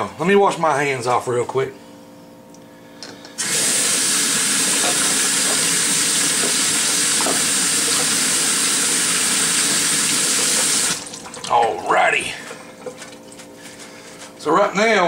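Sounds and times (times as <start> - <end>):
tap water running: 3.4 - 13.5.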